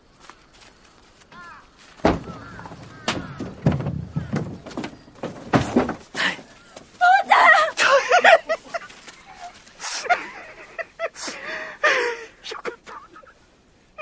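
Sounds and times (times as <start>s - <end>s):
crows cawing: 1.3s - 4.7s
heavy thuds and knocks: 2.0s - 6.4s.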